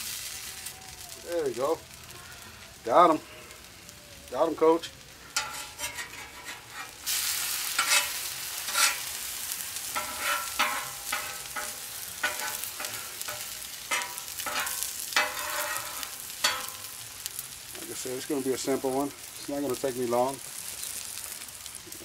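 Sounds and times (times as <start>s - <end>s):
food sizzling on griddle: 0.0s - 22.0s
metal spatula scraping griddle: 4.8s - 19.2s.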